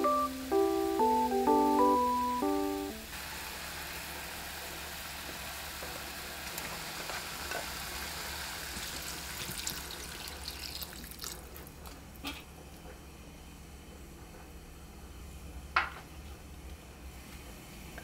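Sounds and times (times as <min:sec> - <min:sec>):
meat sizzling in a pot: 0:03.1 - 0:11.5
water pouring into pot: 0:06.4 - 0:11.9.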